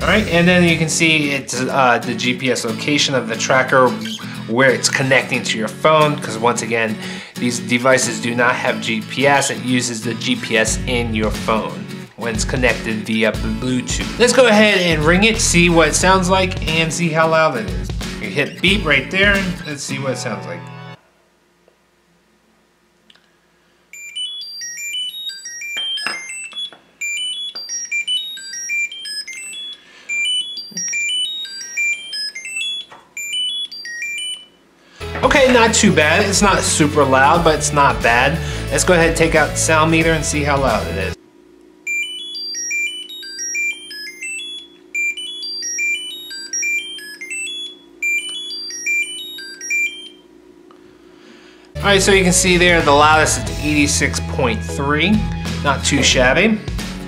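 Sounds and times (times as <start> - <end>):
high electronic beeping melody: 0.0 - 1.3, 13.6 - 20.0, 24.0 - 41.2, 41.9 - 50.2.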